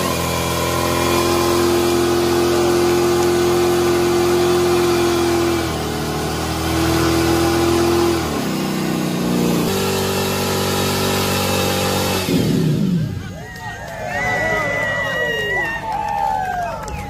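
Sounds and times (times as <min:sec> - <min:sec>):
engine revving high: 0:00.0 - 0:13.3.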